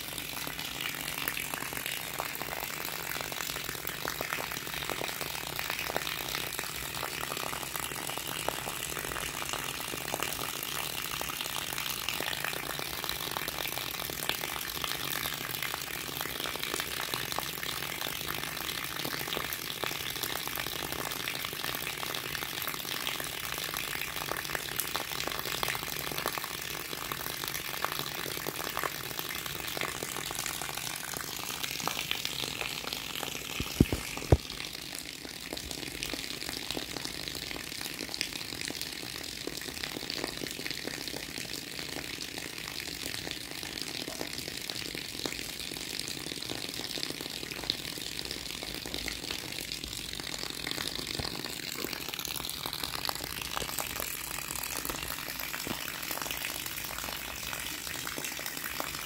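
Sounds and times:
rain pattering on wet ground: 24.6s - 59.0s.

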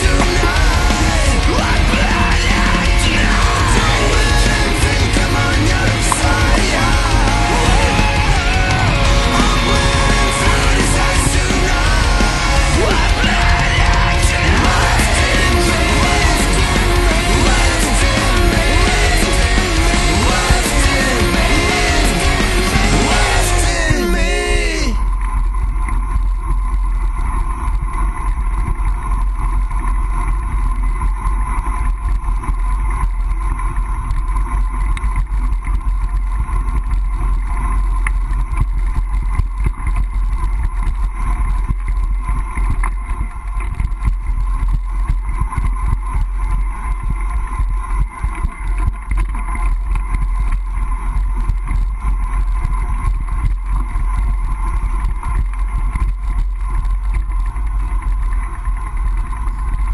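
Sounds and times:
tyre and road noise: 0.0s - 30.7s
bike rattling over bumps: 25.3s - 59.9s.

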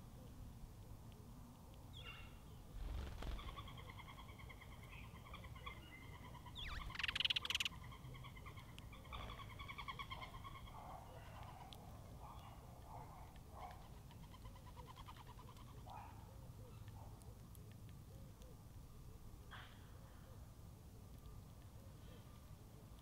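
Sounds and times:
bird wings flapping: 2.8s - 3.6s
bird trilling call: 6.5s - 7.8s.

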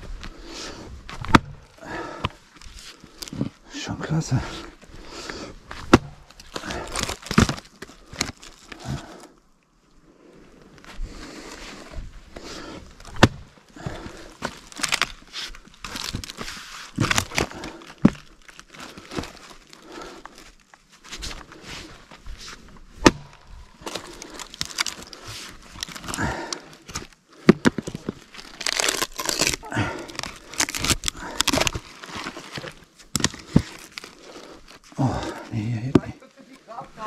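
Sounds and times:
axe splitting wood: 1.1s - 2.4s, 5.8s - 8.9s, 13.1s - 15.2s, 17.0s - 18.3s, 23.0s - 25.0s, 25.8s - 31.8s, 32.6s - 33.8s.

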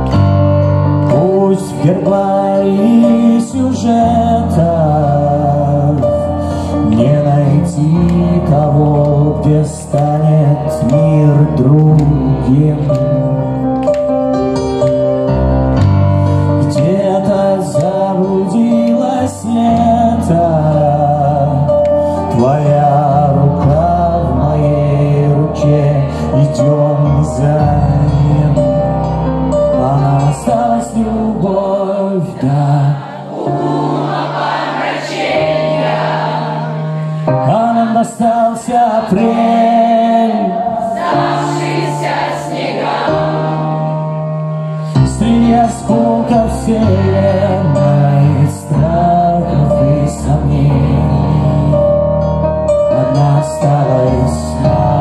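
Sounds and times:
live band playing a ballad: 0.0s - 33.8s
person singing: 0.9s - 13.6s, 36.6s - 42.2s, 44.8s - 55.0s.

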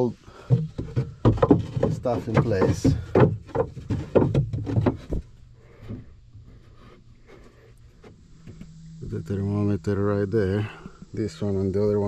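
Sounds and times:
wooden sticks knocking on wood: 0.3s - 6.1s.

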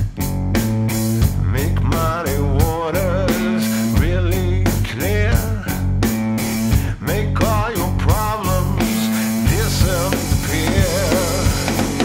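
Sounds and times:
bass: 0.0s - 12.0s
cigar box guitar: 0.0s - 12.0s
drum kit beat: 0.0s - 12.0s
sliding melody line: 8.6s - 12.0s.

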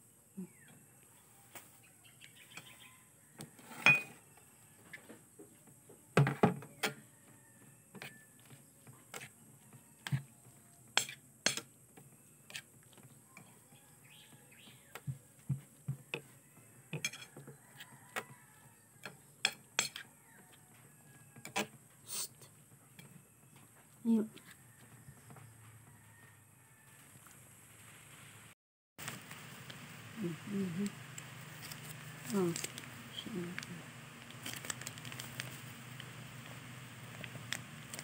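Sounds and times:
metal spoon clinking glass bowl: 3.8s - 4.2s, 17.0s - 17.3s.

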